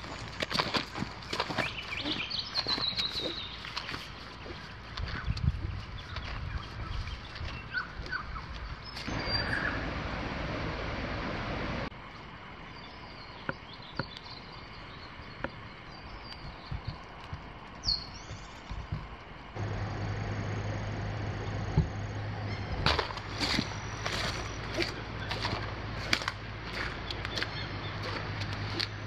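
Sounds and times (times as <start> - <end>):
steady low hum: 0.0 - 13.4, 14.4 - 29.0
bird chirps: 1.3 - 5.4, 6.0 - 9.9, 17.8 - 18.5, 19.6 - 25.7
rising bird call: 9.1 - 10.0.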